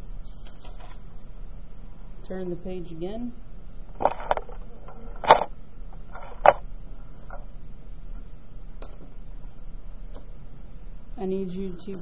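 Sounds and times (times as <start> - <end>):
paper pages rustling: 0.2 - 1.3.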